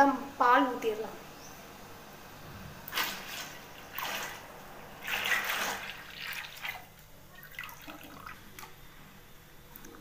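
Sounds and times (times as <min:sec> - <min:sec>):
liquid splashing and gurgling: 0:02.9 - 0:08.8.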